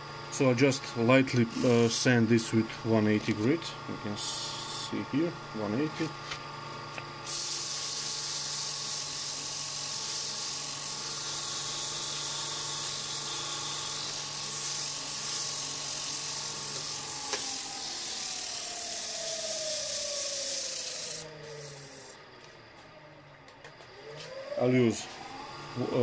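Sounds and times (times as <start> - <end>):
lathe motor hum: 0.1 - 26.0
sandpaper hissing on spinning wood: 1.5 - 2.1, 7.3 - 22.2.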